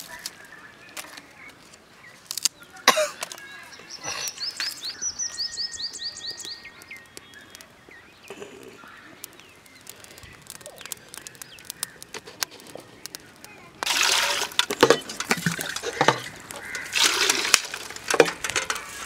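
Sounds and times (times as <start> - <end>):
fire crackling: 0.0 - 19.0
small bird chirping: 1.2 - 13.9.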